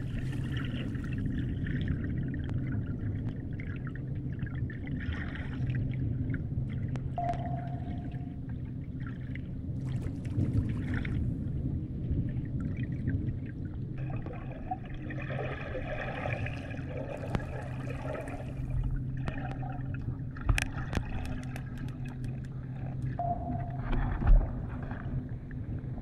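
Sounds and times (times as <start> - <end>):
low underwater hum: 0.0 - 26.0
water gurgling and crackling: 0.0 - 26.0
sharp clicks and knocks: 20.5 - 23.2.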